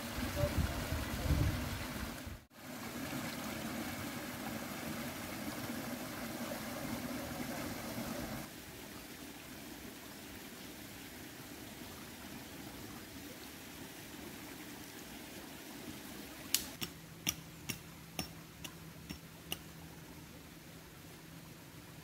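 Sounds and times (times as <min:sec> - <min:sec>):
small river flowing: 0:00.0 - 0:22.0.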